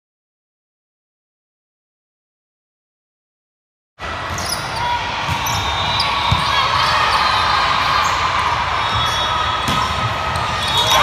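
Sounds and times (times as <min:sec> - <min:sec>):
crowd chatter echoing: 0:04.0 - 0:11.0.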